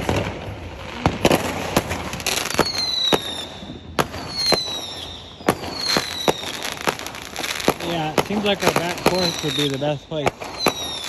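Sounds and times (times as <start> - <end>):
fireworks bangs and cracks: 0.0 - 11.0
firework whistles gliding downward: 2.2 - 11.0.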